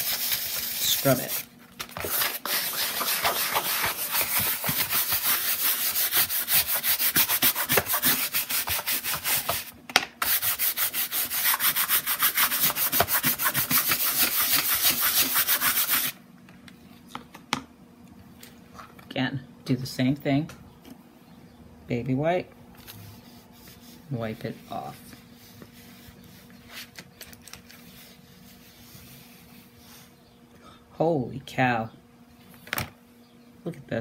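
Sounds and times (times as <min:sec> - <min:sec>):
brush scrubbing canvas: 0:00.0 - 0:16.2, 0:23.0 - 0:26.7, 0:27.8 - 0:30.2.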